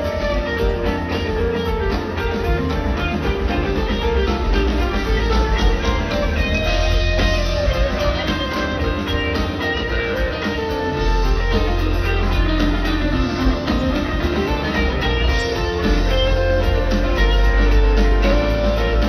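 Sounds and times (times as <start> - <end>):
electric guitar: 0.0 - 19.0
live rock band: 0.0 - 19.0.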